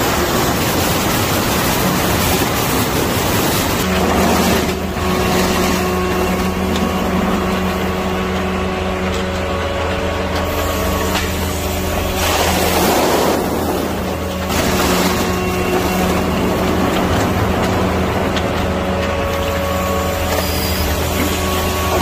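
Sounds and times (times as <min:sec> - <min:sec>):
truck engine and hydraulic pump: 0:00.0 - 0:22.0
plastic bottles rustling: 0:11.3 - 0:22.0.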